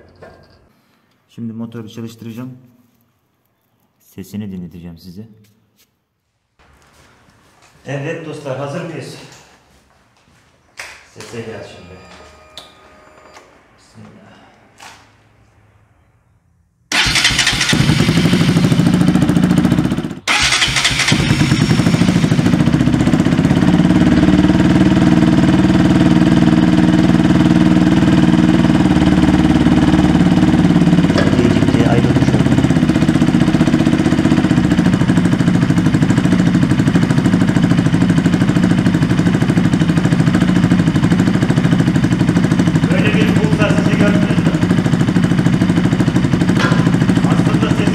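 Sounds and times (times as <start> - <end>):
motorcycle engine starting and idling: 16.9 - 47.9.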